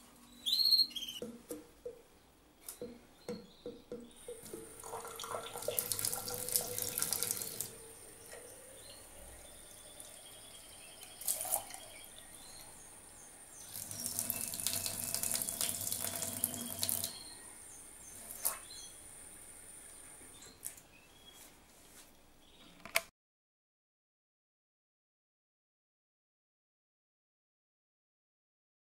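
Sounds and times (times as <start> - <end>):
tap water running into sink: 3.9 - 10.4, 11.0 - 11.9, 13.6 - 17.2.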